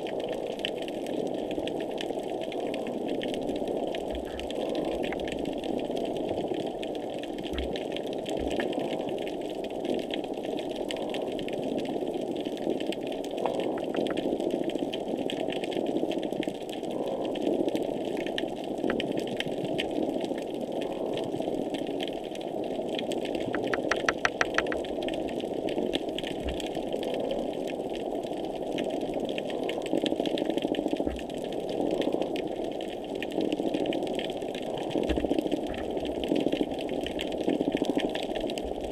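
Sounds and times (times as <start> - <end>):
fine crackling clicks: 12.9 - 14.4, 18.3 - 19.9, 22.9 - 27.3
sharp clicks: 23.6 - 24.8.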